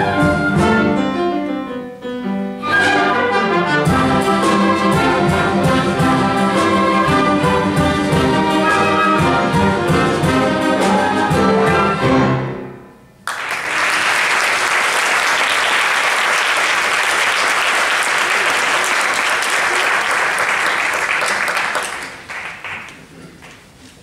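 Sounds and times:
orchestra playing: 0.0s - 13.2s
audience applause: 13.2s - 23.6s.

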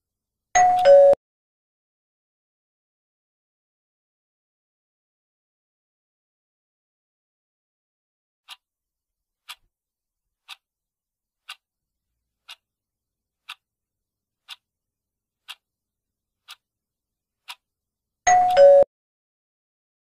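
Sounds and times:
countdown timer ticking: 18.3s - 18.9s.

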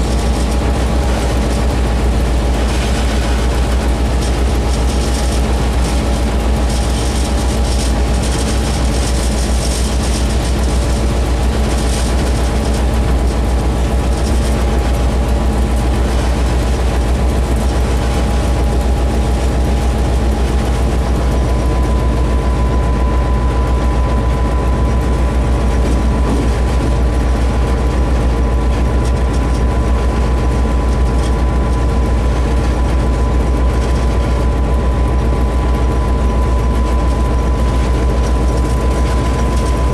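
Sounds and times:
diesel locomotive engine droning: 0.0s - 39.9s
steady whine: 0.0s - 39.9s.

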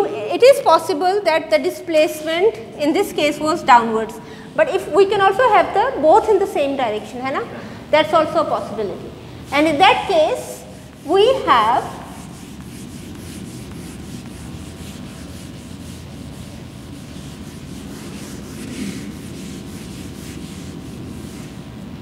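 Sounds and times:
eraser rubbing on whiteboard: 9.5s - 21.9s.

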